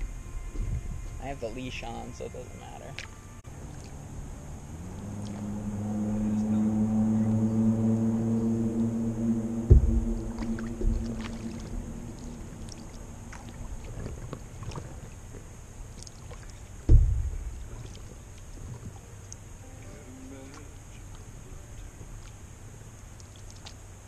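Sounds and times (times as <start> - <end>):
low steady hum: 0.0 - 24.0
paddle strokes in water: 3.0 - 5.5, 8.6 - 24.0
heavy knocks on board: 9.6 - 11.6, 16.9 - 17.6.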